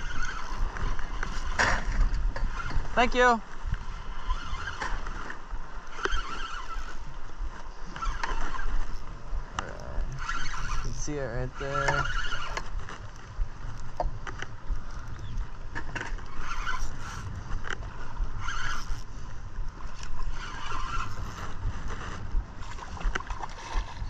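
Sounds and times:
fishing reel clicking: 0:00.0 - 0:01.4, 0:04.0 - 0:07.1, 0:09.7 - 0:12.7, 0:16.2 - 0:19.1, 0:19.9 - 0:21.4
wind and water rumble: 0:00.0 - 0:24.0.

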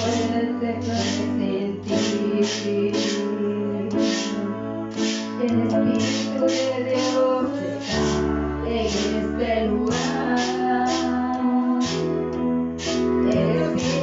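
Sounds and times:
woman singing: 0:00.0 - 0:04.8, 0:05.4 - 0:12.3, 0:13.1 - 0:14.0
electronic keyboard chords: 0:00.0 - 0:14.0
drum machine beat: 0:03.9 - 0:09.2, 0:09.9 - 0:11.2.

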